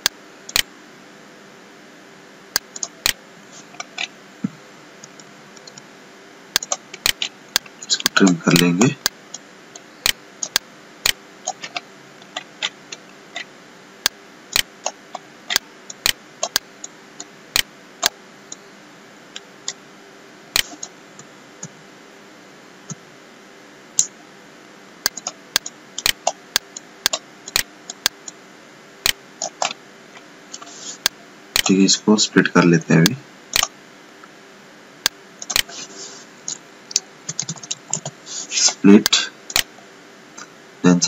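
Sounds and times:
computer mouse clicking: 0.0 - 0.7, 2.6 - 3.2, 6.5 - 9.2, 10.0 - 16.6, 25.1 - 28.4, 29.0 - 29.8, 35.0 - 35.7, 36.5 - 38.2
faint steady hum: 0.0 - 41.0.

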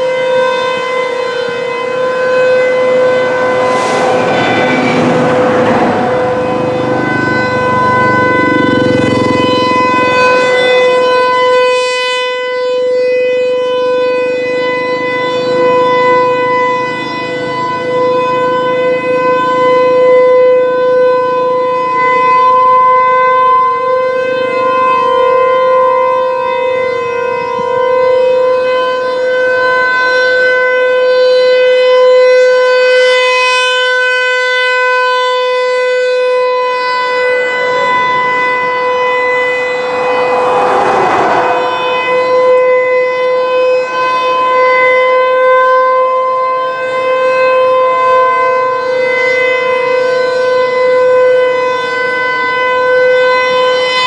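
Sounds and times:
electronic siren alert tone: 0.1 - 19.9, 36.0 - 43.7.

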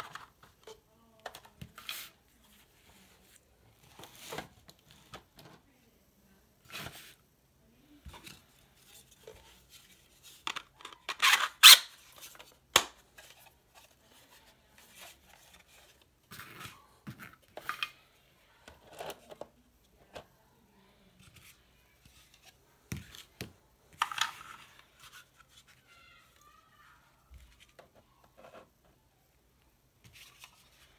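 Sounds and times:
plastic parts clacking and scraping: 8.1 - 18.0, 18.6 - 20.3, 21.2 - 25.8.

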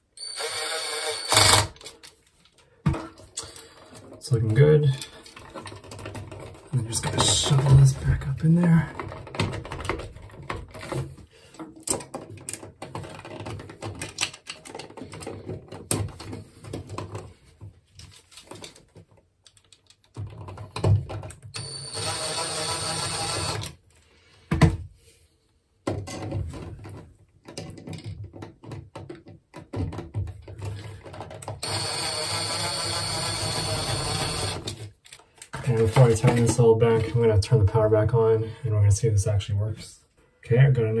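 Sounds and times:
cordless drill running: 0.2 - 1.8, 21.6 - 23.7, 31.6 - 34.7.

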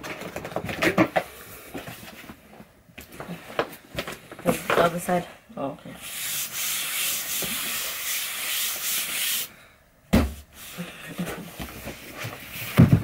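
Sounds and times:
dull thump on box: 10.1 - 10.4.

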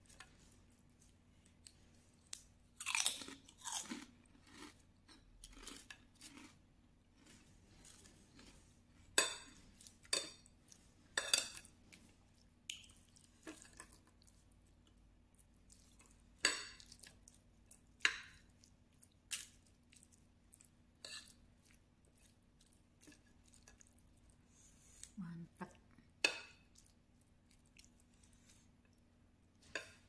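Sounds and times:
soft wet squishes: 26.7 - 30.0.

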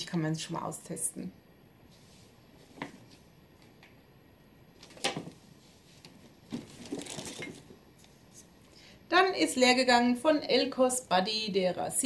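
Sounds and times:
packaging rustling: 6.0 - 8.1.

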